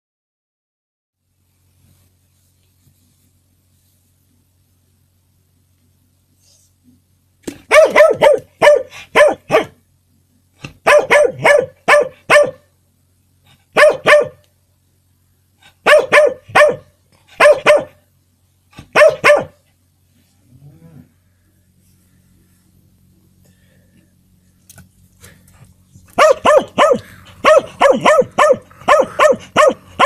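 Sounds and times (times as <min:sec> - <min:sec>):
small dog barking: 0:07.7 - 0:09.8, 0:10.6 - 0:12.7, 0:13.7 - 0:14.4, 0:15.8 - 0:18.0, 0:18.8 - 0:19.6, 0:26.1 - 0:30.0.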